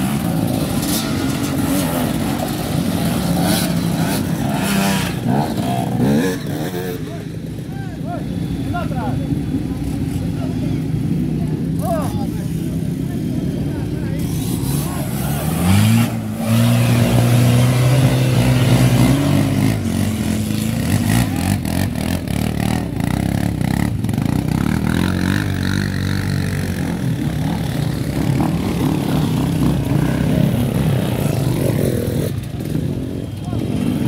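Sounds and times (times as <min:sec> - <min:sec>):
off-road vehicle engine revving: 0:00.0 - 0:07.2, 0:13.8 - 0:34.0
dirt bike engine revving: 0:00.0 - 0:07.4, 0:13.4 - 0:34.0.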